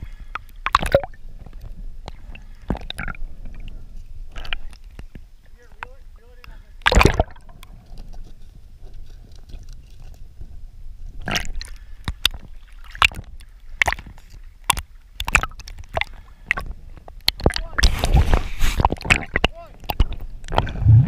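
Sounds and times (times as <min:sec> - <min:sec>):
water sloshing and gurgling: 0:00.0 - 0:21.0
short sharp splashes: 0:06.8 - 0:07.5
low muffled rumble: 0:20.6 - 0:21.0.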